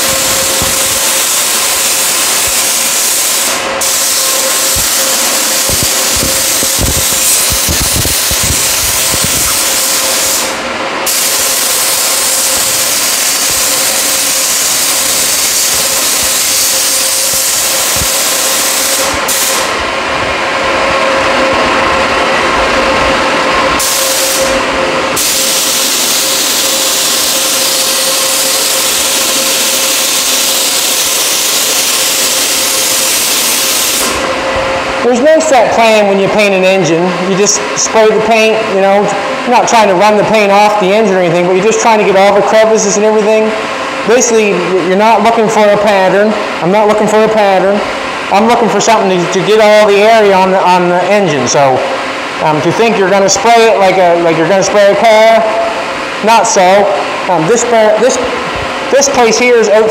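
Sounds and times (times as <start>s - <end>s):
paint spray gun hissing: 0.0s - 19.8s, 23.8s - 34.3s
spray booth fan humming: 0.0s - 59.9s.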